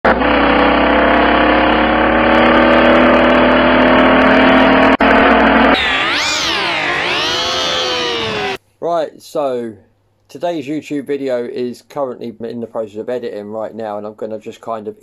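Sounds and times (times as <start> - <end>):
car engine running: 0.1 - 8.6
swooping sound effect: 5.0 - 8.6.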